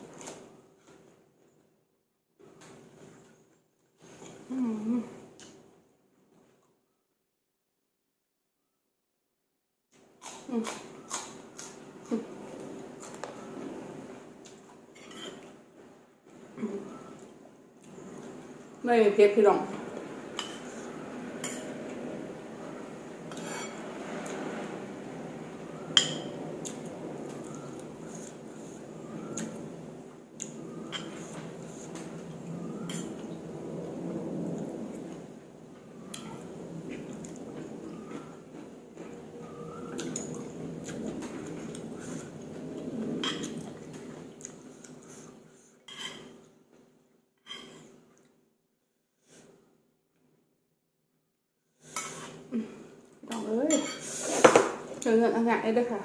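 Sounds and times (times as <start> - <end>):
chewing noodle soup: 36.1 - 45.3.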